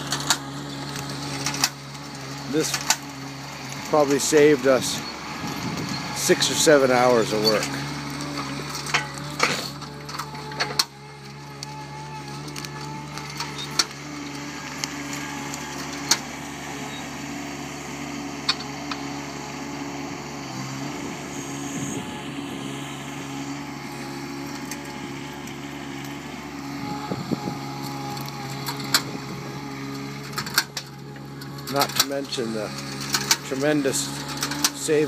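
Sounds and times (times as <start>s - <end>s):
wheel loader engine running: 0.0s - 35.0s.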